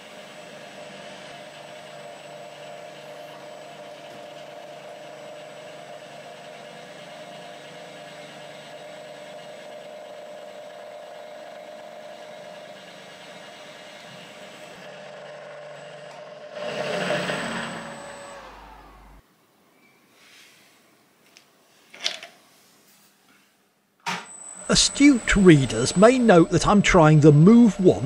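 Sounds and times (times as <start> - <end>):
milling machine humming: 7.8 - 19.2, 24.2 - 28.0.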